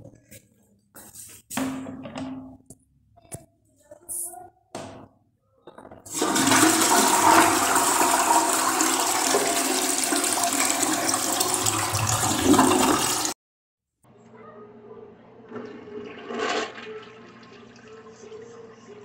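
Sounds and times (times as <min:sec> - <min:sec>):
toilet flushing: 0:06.1 - 0:13.4, 0:15.4 - 0:19.0.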